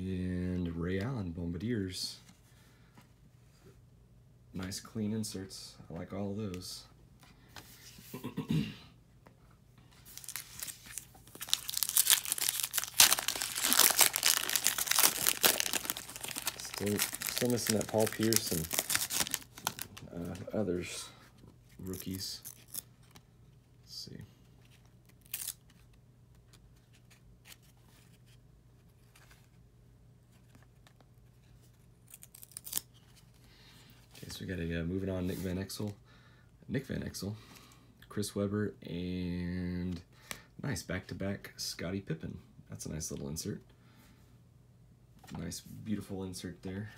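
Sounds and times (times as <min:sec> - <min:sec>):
low steady hum: 0:00.0 - 0:46.9
foil wrapper crinkling and tearing: 0:10.1 - 0:20.0, 0:21.8 - 0:22.9, 0:25.1 - 0:25.6, 0:32.1 - 0:32.9.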